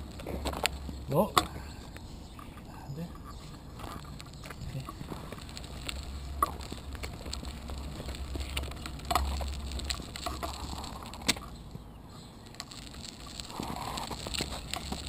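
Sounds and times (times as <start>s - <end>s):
bicycle clicks and knocks: 0.0s - 2.6s, 3.2s - 11.8s, 12.5s - 15.0s
bicycle rolling rumble: 0.0s - 15.0s.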